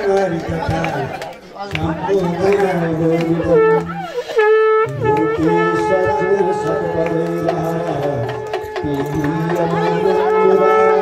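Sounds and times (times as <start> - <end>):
reedy wind instrument melody: 2.3 - 11.0
low drone note: 3.4 - 11.0.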